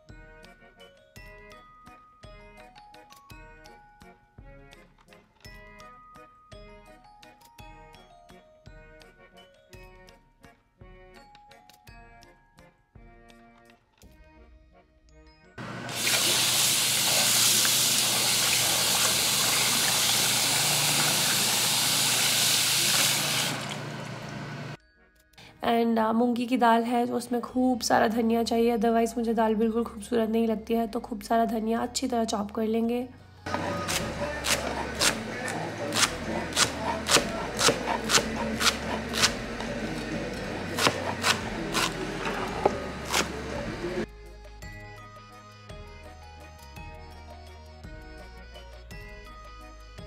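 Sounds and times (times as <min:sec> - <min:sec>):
tap running into bowl of water: 0:15.9 - 0:23.8
hands swishing leaves in water: 0:33.5 - 0:39.4
knife chopping on cutting board: 0:33.5 - 0:44.0.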